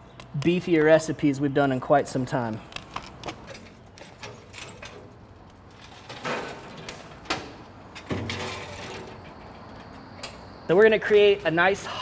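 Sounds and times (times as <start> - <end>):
coals rattling sliding out: 2.7 - 10.6.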